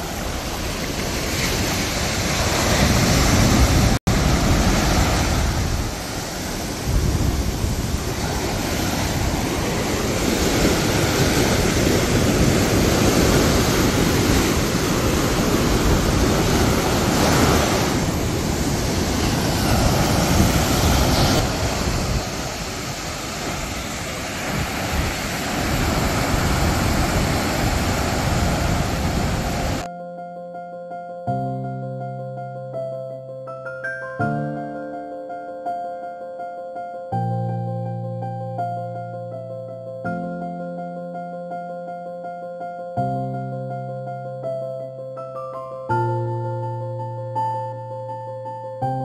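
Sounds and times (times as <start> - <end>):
sea waves breaking on beach: 0.0 - 29.9
wind rumbling on microphone: 0.0 - 29.9.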